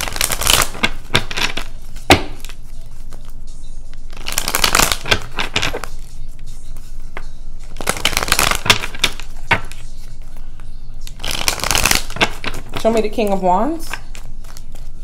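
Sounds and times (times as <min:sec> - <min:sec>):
cards being shuffled: 0:00.0 - 0:15.0.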